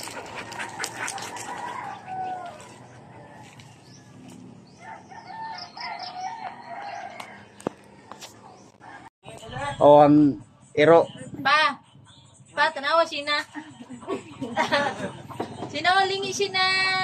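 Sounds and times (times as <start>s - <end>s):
rooster crowing: 1.1s - 3.7s, 4.8s - 8.2s.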